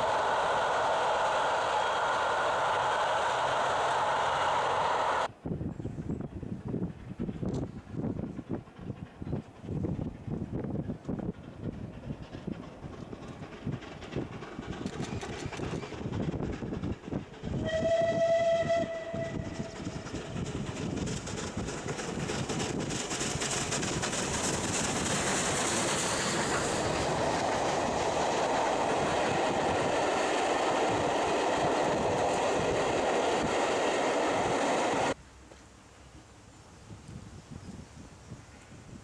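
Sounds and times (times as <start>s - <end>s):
train running over rails: 0.0s - 35.2s
steam locomotive whistle: 17.6s - 19.9s.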